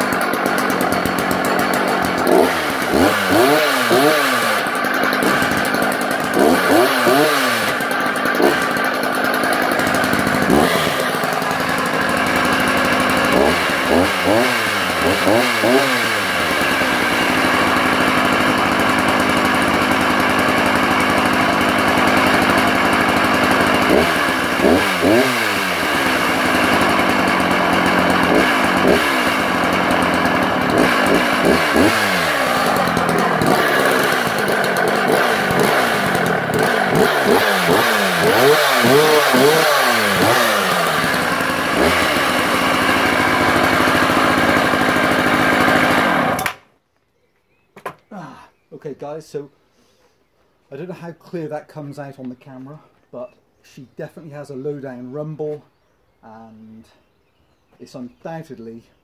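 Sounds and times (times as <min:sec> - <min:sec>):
chainsaw engine revving: 0:00.0 - 0:46.7.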